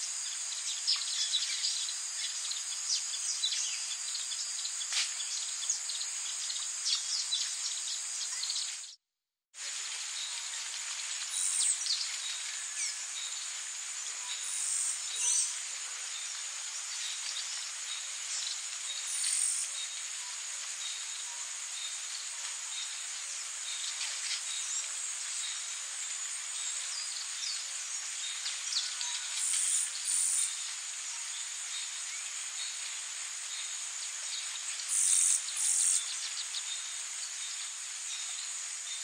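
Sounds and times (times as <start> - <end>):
insects chirring: 10.0 - 39.0.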